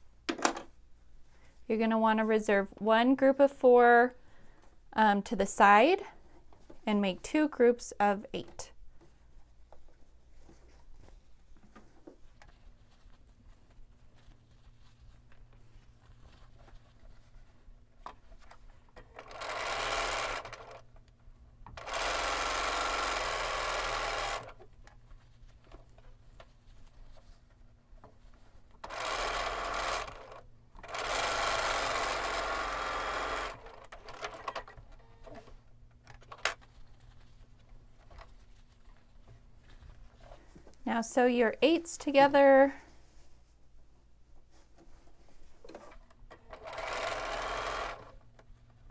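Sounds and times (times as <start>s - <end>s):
fabric handling: 9.0s - 18.9s
sewing machine stitching: 19.0s - 20.8s, 21.7s - 24.6s, 28.8s - 35.5s, 45.7s - 48.2s.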